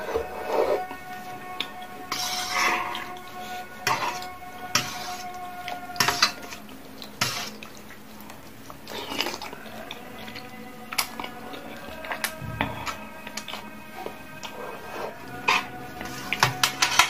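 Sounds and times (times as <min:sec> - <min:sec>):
noodles slurped and chewed: 0:00.0 - 0:17.0
cutlery clinking on metal tray: 0:06.0 - 0:06.6, 0:16.3 - 0:17.0.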